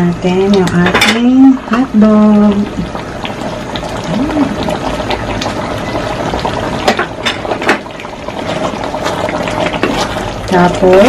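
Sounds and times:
steady hum: 0.0s - 11.0s
thick sauce simmering: 1.5s - 11.0s
wooden spatula stirring: 8.4s - 11.0s.

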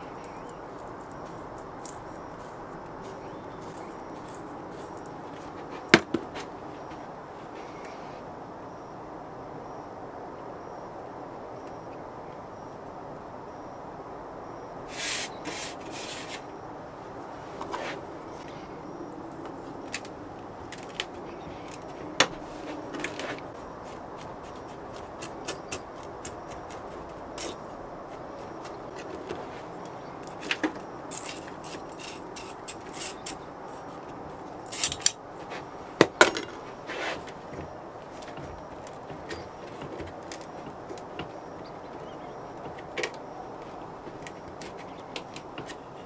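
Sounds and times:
hands rubbing sand: 0.8s - 6.5s, 14.9s - 16.4s, 36.8s - 37.4s.

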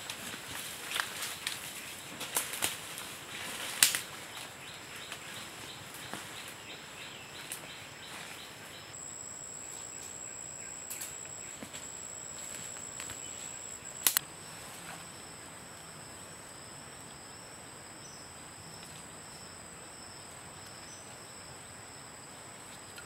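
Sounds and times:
dry leaves and twigs snapping: 0.0s - 6.6s, 10.8s - 14.3s
high insect drone: 4.9s - 20.2s.

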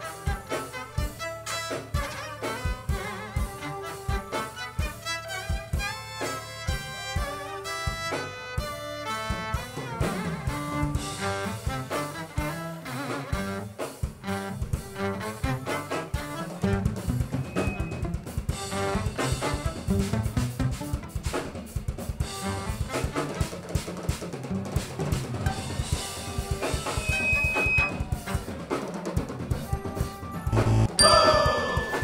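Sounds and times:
live band instrumental groove: 0.0s - 32.0s
snare and bass drum: 9.4s - 32.0s.

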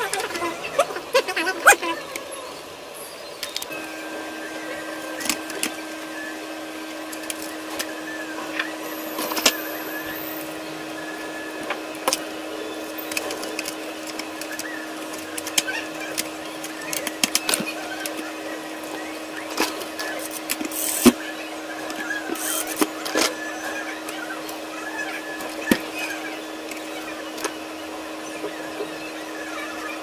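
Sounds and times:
steady machine hum: 0.0s - 30.0s
plastic parts clicking: 3.4s - 3.7s, 7.1s - 7.9s, 13.1s - 18.2s.

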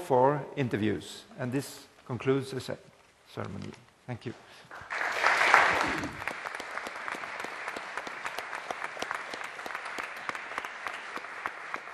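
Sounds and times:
audience clapping: 4.6s - 11.9s.

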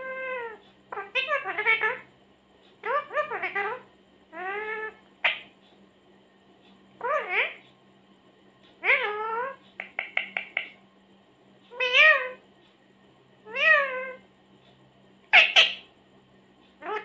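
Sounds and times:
parakeet squawking: 0.0s - 2.1s, 2.8s - 5.5s, 7.0s - 7.6s, 8.8s - 10.7s, 11.7s - 12.4s, 13.5s - 14.2s, 15.3s - 15.9s, 16.8s - 17.0s.

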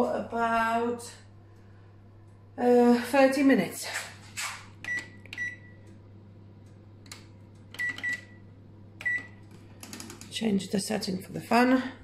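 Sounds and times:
oven control panel beeping: 4.7s - 9.5s.

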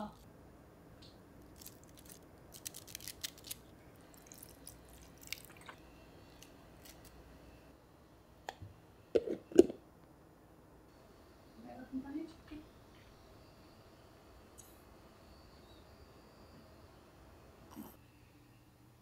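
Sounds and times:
cabbage leaves crackling: 1.5s - 5.7s.

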